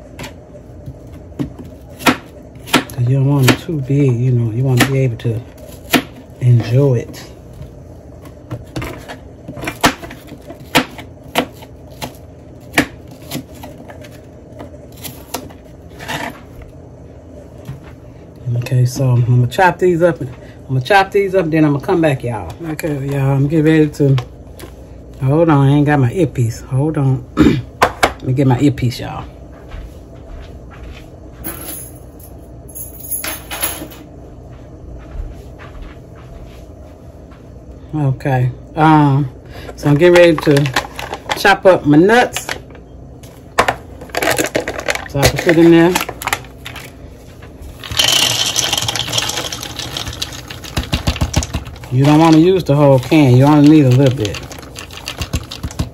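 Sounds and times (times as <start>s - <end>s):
low steady hum: 0.0s - 55.9s
knocks and rattles of handling: 47.8s - 55.9s.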